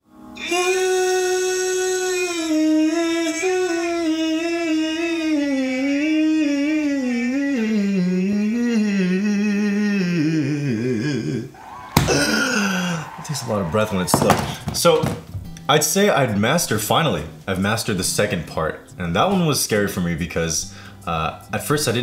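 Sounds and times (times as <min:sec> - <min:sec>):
man singing unaccompanied: 0:00.4 - 0:11.6.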